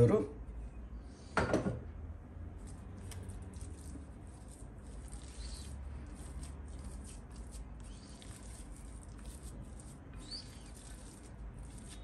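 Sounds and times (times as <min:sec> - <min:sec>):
spatula squishing dough: 0:02.5 - 0:12.0
spatula scraping glass bowl: 0:03.0 - 0:12.0.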